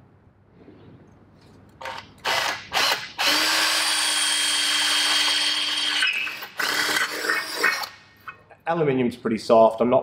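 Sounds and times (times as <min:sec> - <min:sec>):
drill boring through metal: 0:02.2 - 0:08.0.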